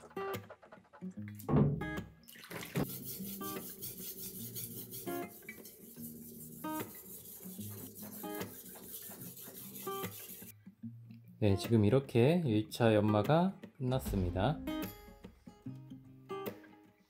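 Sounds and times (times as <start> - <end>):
knife scraping on whetstone: 2.8 - 10.5.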